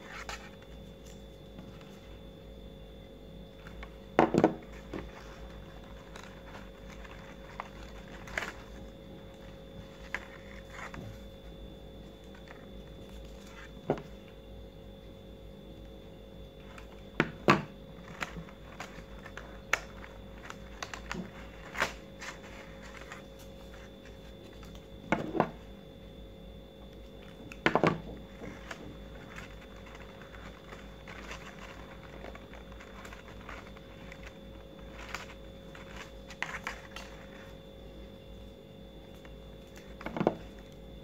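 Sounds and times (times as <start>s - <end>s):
faint steady hum: 0.0s - 41.0s
stiff paper rustling and crinkling: 3.6s - 14.3s, 16.6s - 25.6s, 27.1s - 37.7s.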